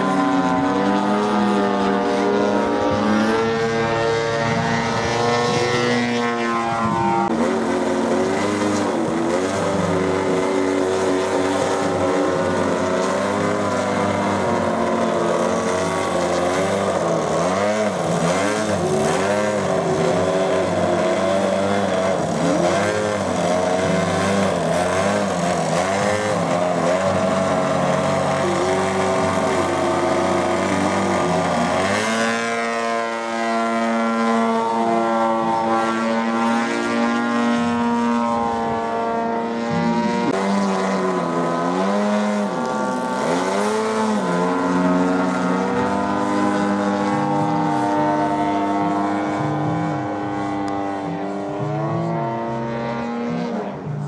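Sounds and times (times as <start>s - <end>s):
model airplane engine and propeller: 0.0s - 54.0s.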